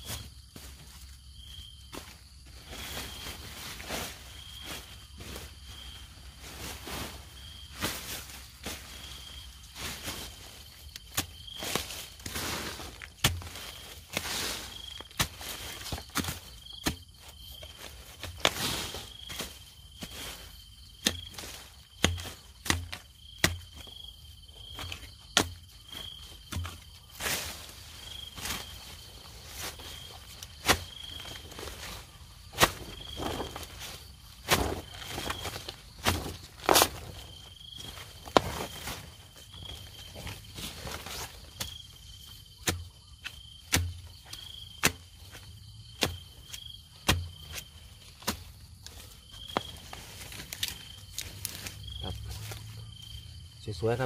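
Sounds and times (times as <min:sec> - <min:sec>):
high insect chirp: 0:00.0 - 0:54.0
digging tool chopping soil: 0:10.8 - 0:24.0, 0:24.6 - 0:52.6.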